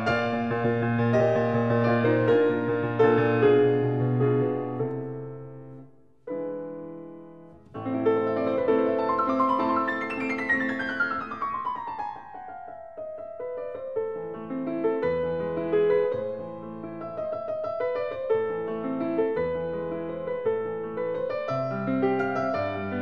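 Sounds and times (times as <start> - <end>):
classical piano music: 0.0 - 23.0.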